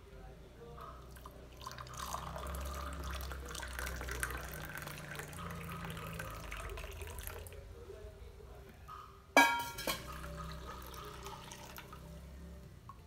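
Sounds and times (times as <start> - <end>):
water pouring in thin stream: 1.1 - 7.6.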